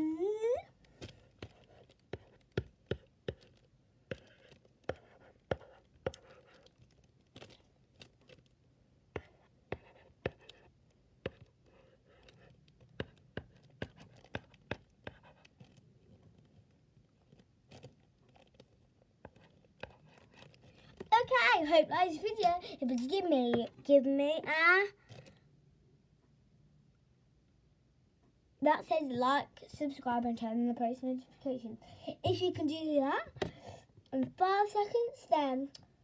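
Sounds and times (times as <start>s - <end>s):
marker tapping on board: 1.0s - 3.5s, 4.1s - 6.6s, 9.2s - 11.5s, 12.1s - 15.4s, 19.2s - 20.2s
marker scratching on whiteboard: 1.0s - 7.6s, 9.2s - 15.8s, 19.2s - 21.6s.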